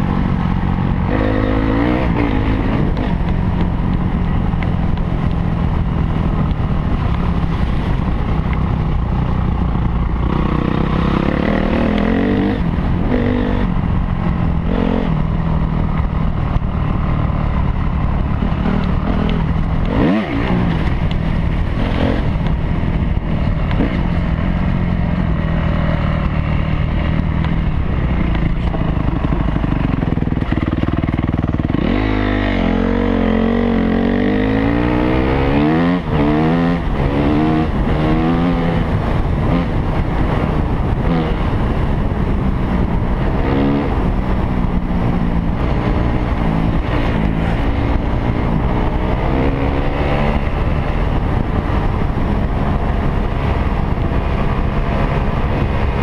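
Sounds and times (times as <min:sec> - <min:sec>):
dirt bike engine revving: 0:00.7 - 0:03.4, 0:10.2 - 0:15.3, 0:18.2 - 0:24.6, 0:28.1 - 0:41.8.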